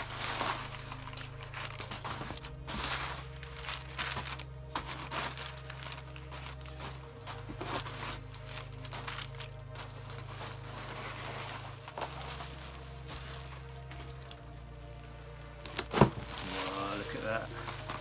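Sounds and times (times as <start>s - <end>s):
crumpled newspaper rustling: 0.0s - 18.0s
soft background music: 0.0s - 18.0s.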